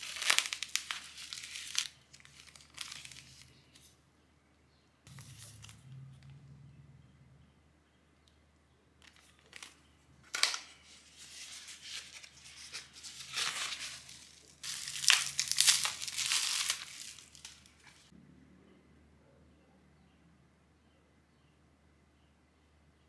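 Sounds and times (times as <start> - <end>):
sharp crackle: 0.0 - 3.8, 13.0 - 18.1
bubble wrap crinkling: 0.0 - 4.0, 5.1 - 6.4, 9.0 - 18.1.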